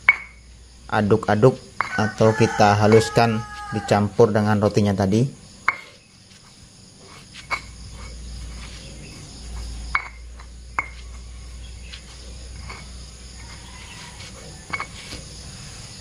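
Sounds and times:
stone-on-stone knocks: 0.0s - 0.4s, 1.8s - 2.0s, 9.9s - 11.2s, 12.6s - 15.2s
stone pestle grinding in mortar: 5.6s - 15.4s.

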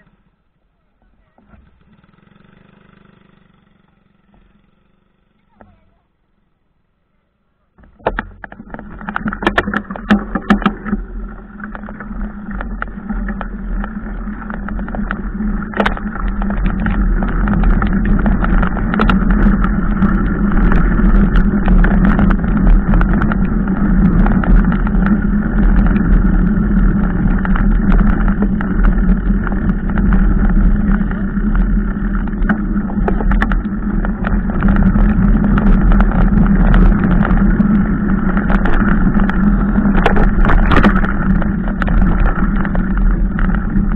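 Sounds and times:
bike rattles and clicks: 7.8s - 43.9s
wind rushing over camera: 7.8s - 43.9s
low rumble: 8.2s - 43.9s.

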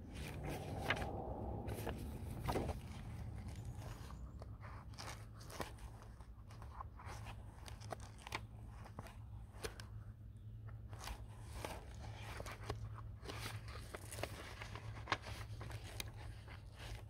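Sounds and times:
low hum: 0.0s - 5.2s
handling crackles and clicks: 0.2s - 17.0s.

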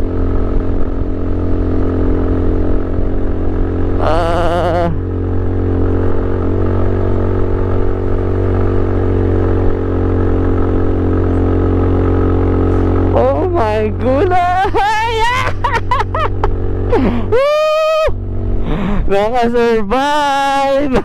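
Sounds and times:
scooter engine running hard: 0.0s - 21.0s
wavering voice: 4.0s - 5.0s.

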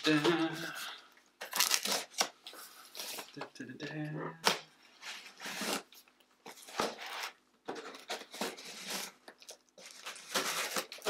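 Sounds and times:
packing tape scraped and torn: 1.4s - 3.3s, 5.0s - 11.0s.

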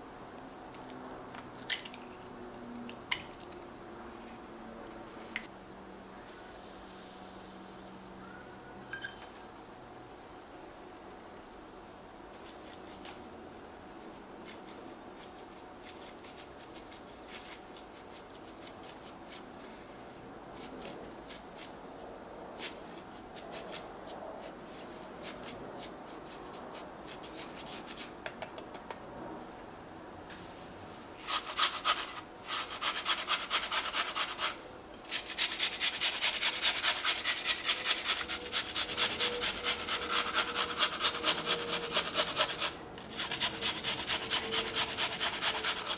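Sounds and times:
grating on a handheld grater: 35.2s - 45.9s.

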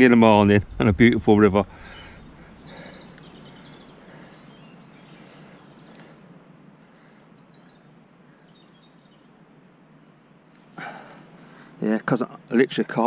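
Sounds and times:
quiet riverside background noise: 0.0s - 13.0s
faint high bird chirps: 1.7s - 6.2s.

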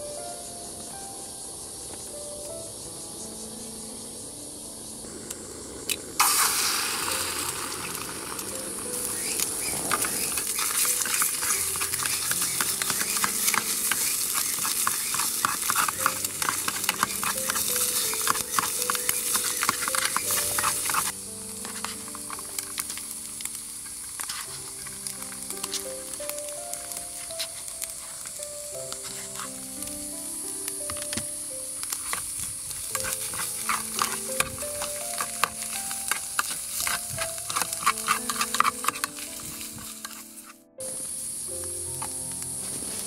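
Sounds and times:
food sizzling in hot pan: 5.0s - 43.0s
stirring and scraping in pan: 6.2s - 23.0s, 31.8s - 40.5s.

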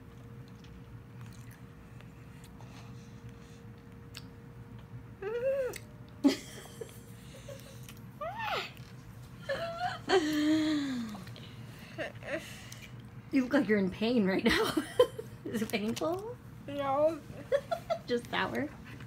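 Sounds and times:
girl whimpering and squealing: 8.2s - 8.8s.

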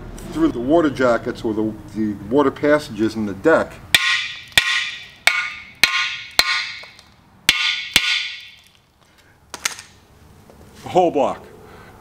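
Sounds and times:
hammer tapping metal engine block: 3.9s - 8.7s.

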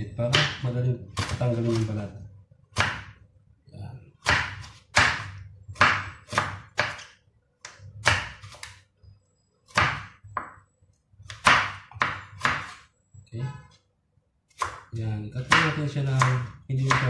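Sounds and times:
knife chopping on wooden board: 0.2s - 2.0s, 2.7s - 3.2s, 4.2s - 8.8s, 9.7s - 12.9s, 14.5s - 17.0s.

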